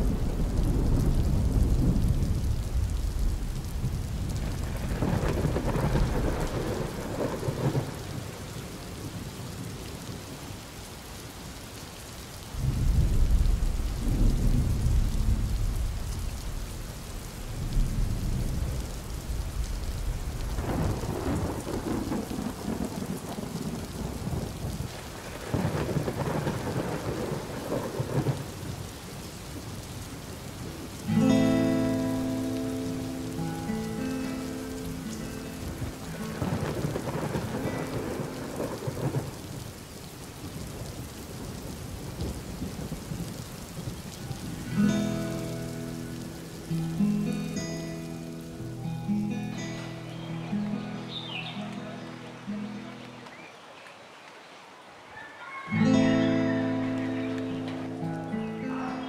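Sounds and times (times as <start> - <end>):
deep thunder rolls: 0.0 - 8.4, 12.6 - 28.5, 35.0 - 39.6
steady rain falling: 0.0 - 59.0.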